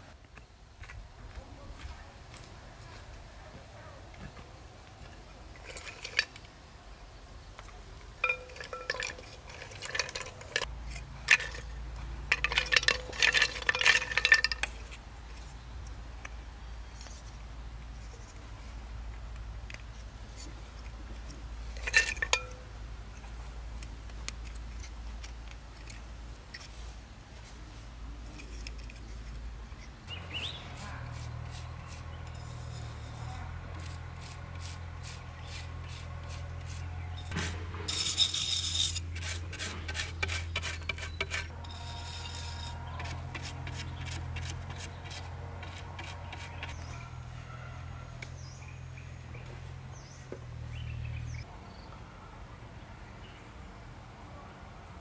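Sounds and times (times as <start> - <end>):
bamboo tubes knocking and clinking: 5.5 - 6.5, 8.0 - 15.5, 19.6 - 26.8, 35.9 - 47.1.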